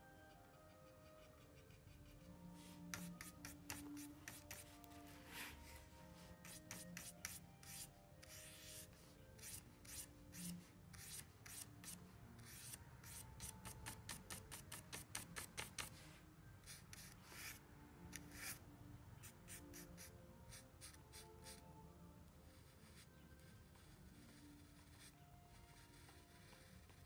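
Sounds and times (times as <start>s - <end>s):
paintbrush strokes on canvas: 1.1s - 16.2s.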